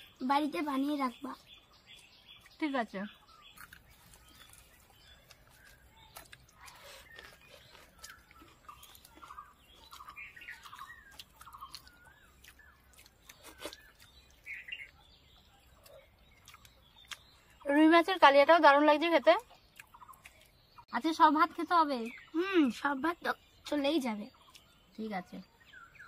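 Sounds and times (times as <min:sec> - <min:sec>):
faint birdsong chirps: 0:00.0 - 0:26.0
soft clicks of eating: 0:03.2 - 0:17.7, 0:19.4 - 0:20.9, 0:24.3 - 0:24.9.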